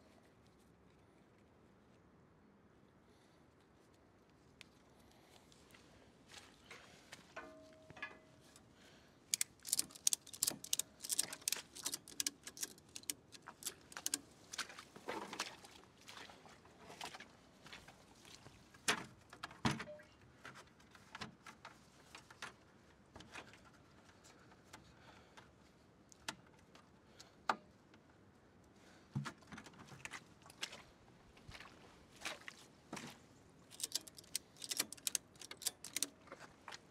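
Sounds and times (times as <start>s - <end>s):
strap ratchet clicking: 9.3s - 14.2s, 33.7s - 36.1s.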